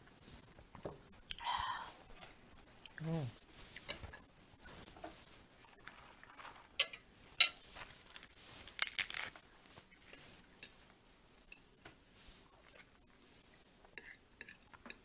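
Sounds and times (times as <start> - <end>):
crunchy chewing: 2.1 - 10.8.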